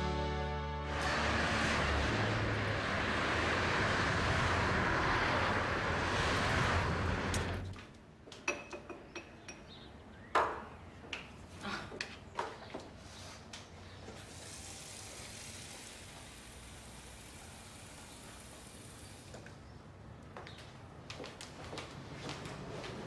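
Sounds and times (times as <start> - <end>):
cars passing: 0.3 - 7.8
dishes clinking and knocking: 8.4 - 9.8.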